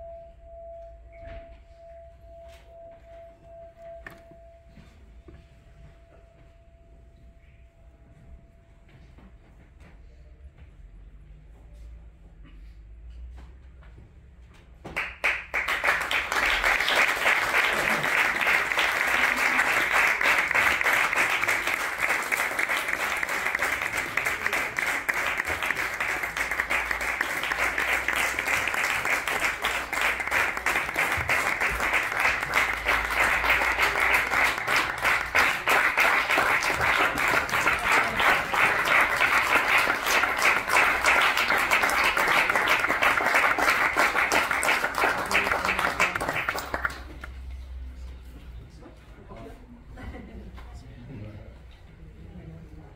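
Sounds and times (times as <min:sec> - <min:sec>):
audience applauding: 0:15.0 - 0:47.5.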